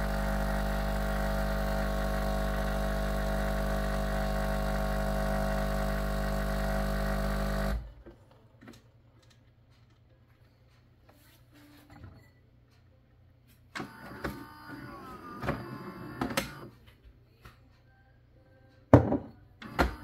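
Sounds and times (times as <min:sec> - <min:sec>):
espresso machine motor whirring: 0:00.0 - 0:07.9, 0:13.8 - 0:16.7, 0:19.6 - 0:20.0.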